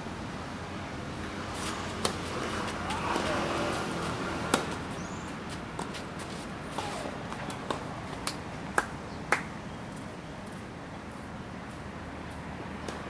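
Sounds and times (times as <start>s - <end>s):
tennis ball hit by racket: 2.0s - 3.4s, 4.5s - 4.8s.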